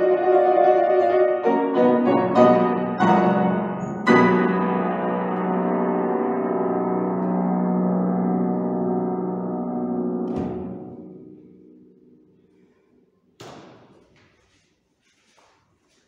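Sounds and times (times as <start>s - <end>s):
piano chord ringing: 0.0s - 12.2s
piano dampers thump: 10.2s - 11.0s.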